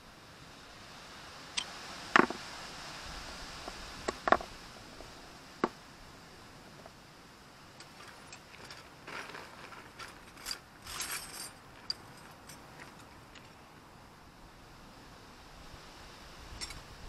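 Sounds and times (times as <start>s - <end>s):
metal tools rattling in a bag: 7.8s - 13.2s.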